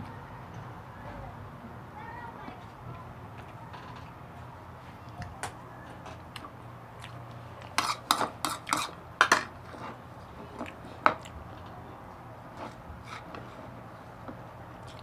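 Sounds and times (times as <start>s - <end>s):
spoon scraping a bowl: 7.7s - 9.0s, 12.6s - 13.6s.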